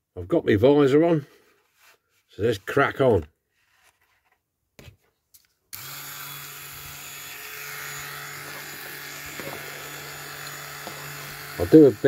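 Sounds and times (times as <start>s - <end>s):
rotary tool whirring: 5.7s - 12.0s.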